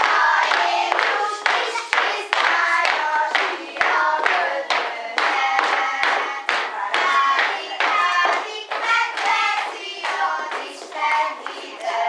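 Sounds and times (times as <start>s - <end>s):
children singing: 0.0s - 12.0s
hand claps: 0.0s - 12.0s.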